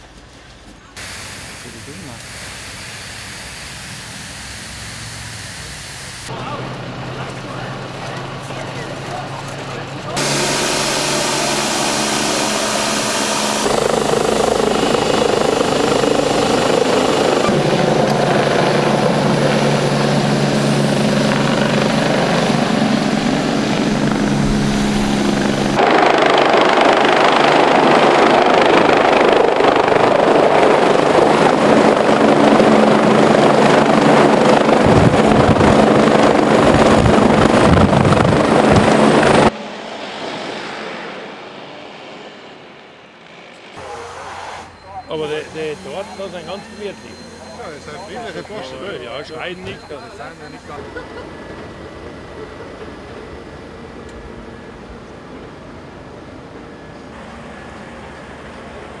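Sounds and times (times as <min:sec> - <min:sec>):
helicopter turbine and rotor: 0:01.0 - 0:59.0.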